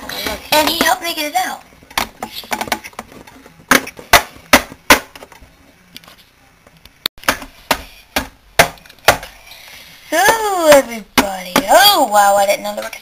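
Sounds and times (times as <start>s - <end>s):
plastic figurines tapping: 1.9s - 5.4s.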